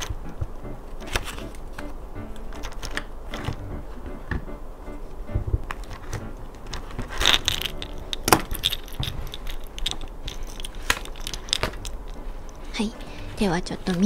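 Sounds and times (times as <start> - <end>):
paper pages rustling: 1.0 - 1.9, 2.5 - 3.6, 5.5 - 14.0.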